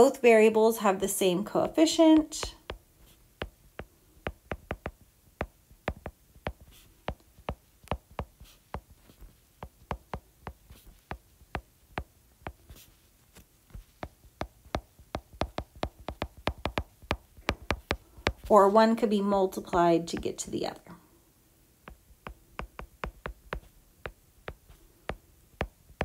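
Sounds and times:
stylus tapping on glass screen: 2.2 - 8.9, 14.0 - 18.5, 21.9 - 26.0.

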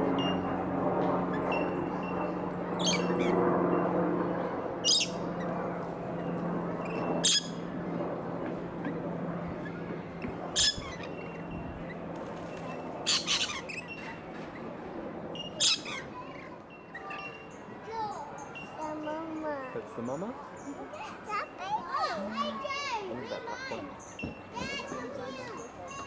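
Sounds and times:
lorikeets screeching: 1.3 - 3.8, 4.8 - 5.6, 6.8 - 7.7, 10.5 - 14.7, 15.4 - 18.8.

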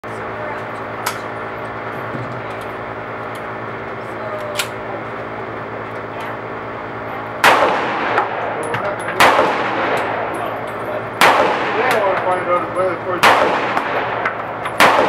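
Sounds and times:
pistol shots with echo: 7.4 - 10.4, 11.1 - 15.0.

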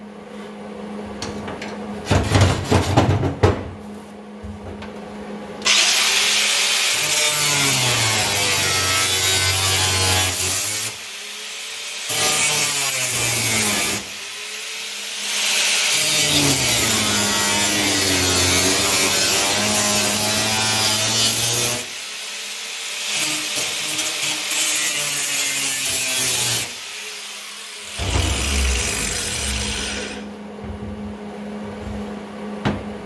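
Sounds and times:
power tool cutting sheet steel: 5.6 - 30.3.

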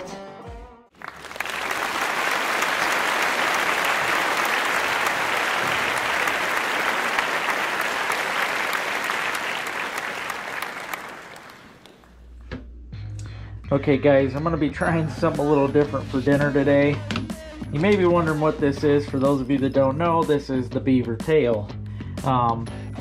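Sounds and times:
crowd applauding: 0.9 - 12.2.

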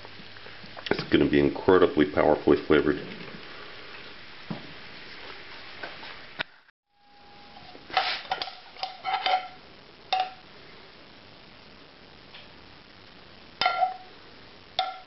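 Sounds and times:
pan sizzling: 6.9 - 10.7, 12.2 - 15.0
metal spoon clinking on plate: 8.3 - 9.6, 13.6 - 14.0.

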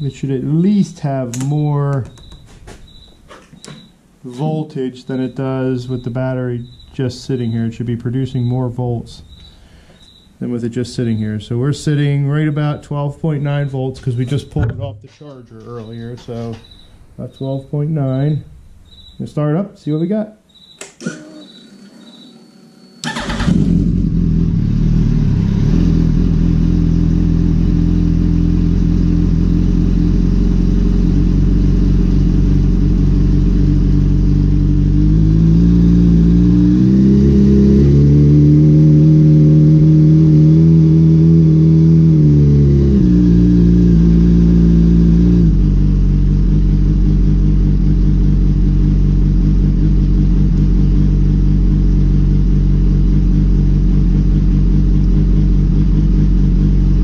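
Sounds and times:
motorcycle engine starting and idling: 20.8 - 57.0
motorcycle engine revving: 21.0 - 57.0.

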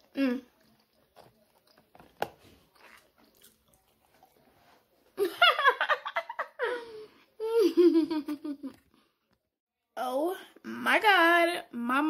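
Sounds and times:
quiet chewing: 0.0 - 5.2
woman laughing: 5.2 - 8.8.

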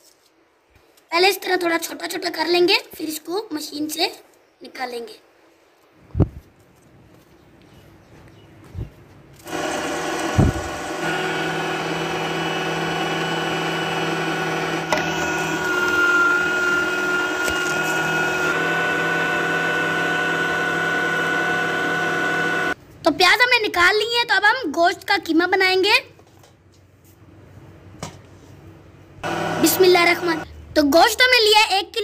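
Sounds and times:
meat grinder motor whining: 9.4 - 22.8, 29.2 - 30.4.

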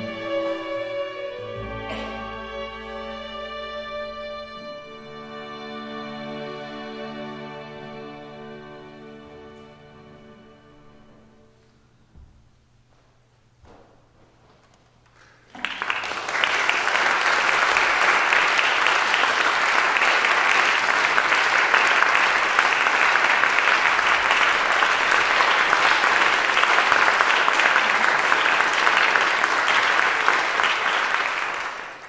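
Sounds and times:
audience applause: 15.5 - 32.0.

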